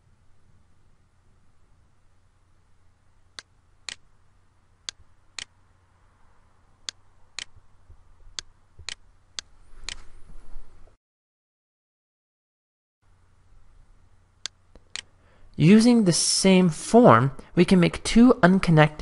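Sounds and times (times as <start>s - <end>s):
faint low hum: 0.0s - 11.0s, 13.0s - 19.0s
computer mouse clicking: 3.3s - 4.0s, 8.3s - 10.0s, 14.4s - 15.1s.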